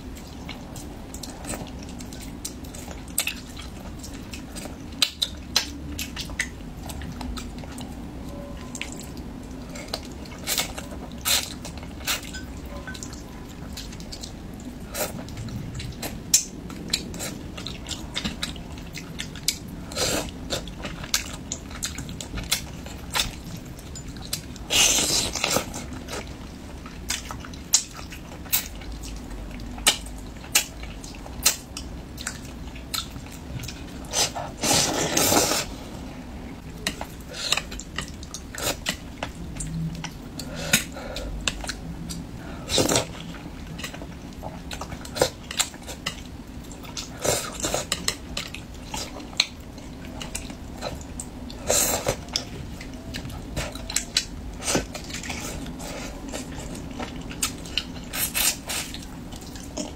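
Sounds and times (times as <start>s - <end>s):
chewing and sucking: 36.8s - 59.9s.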